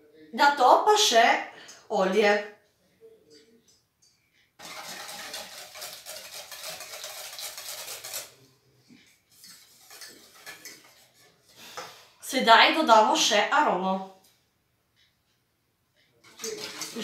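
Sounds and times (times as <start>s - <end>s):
whisk clinking in metal bowl: 4.6s - 8.4s, 9.3s - 11.3s, 16.2s - 17.0s.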